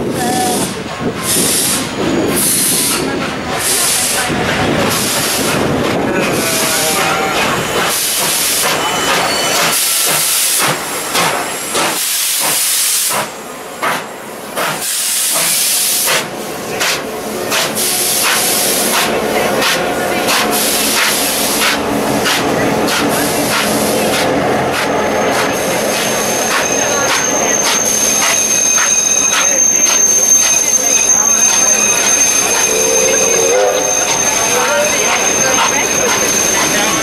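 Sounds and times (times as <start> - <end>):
steam locomotive hissing steam: 0.0 - 37.0
train running noise: 0.0 - 37.0
thin high tone: 25.0 - 37.0.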